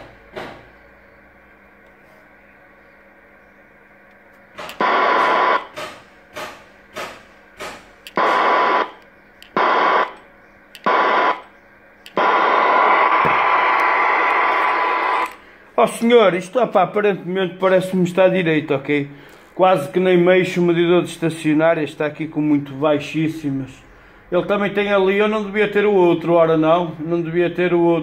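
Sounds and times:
radio static bursts: 0:04.7 - 0:05.7, 0:08.1 - 0:10.2, 0:10.8 - 0:11.5, 0:12.1 - 0:15.4.

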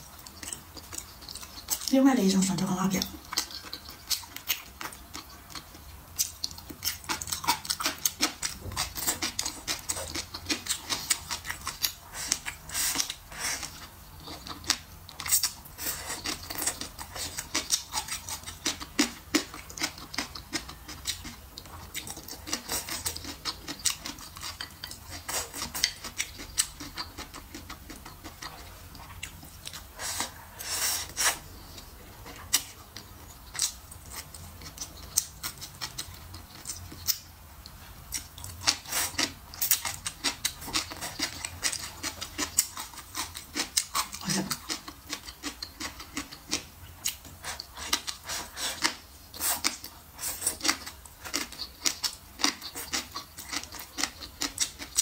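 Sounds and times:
wet chewing and lip smacks: 0:00.1 - 0:01.9, 0:03.0 - 0:30.4.

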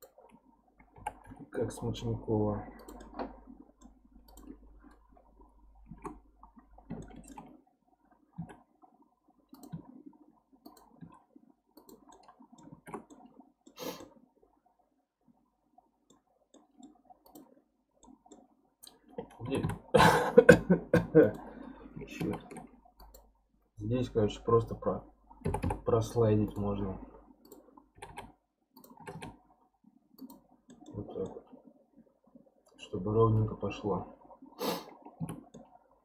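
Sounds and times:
computer mouse clicks: 0:00.0 - 0:01.4, 0:02.7 - 0:05.1, 0:05.9 - 0:07.6, 0:09.5 - 0:10.0, 0:10.6 - 0:14.2, 0:16.0 - 0:19.8, 0:22.1 - 0:23.4, 0:25.3 - 0:26.7, 0:27.4 - 0:29.5, 0:30.2 - 0:31.4, 0:34.9 - 0:35.8
voice: 0:01.6 - 0:02.8, 0:19.4 - 0:21.4, 0:22.1 - 0:22.5, 0:23.8 - 0:25.1, 0:25.8 - 0:27.1, 0:30.9 - 0:31.4, 0:32.8 - 0:34.1
keyboard keys clicking: 0:25.4 - 0:26.7, 0:27.5 - 0:29.4.

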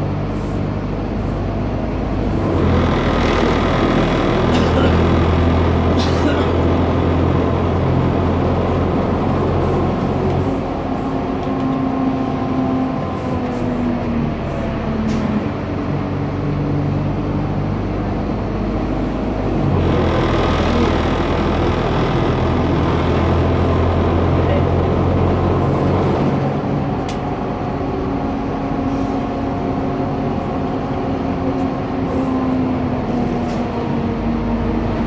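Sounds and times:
bus diesel engine hum: 0:00.0 - 0:35.0
road noise: 0:00.0 - 0:35.0
gearbox whine: 0:02.4 - 0:05.9, 0:19.9 - 0:24.2.

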